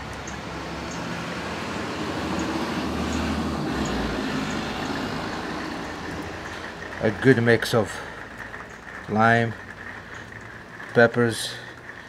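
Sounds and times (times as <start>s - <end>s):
steady rushing rumble: 0.0s - 12.0s.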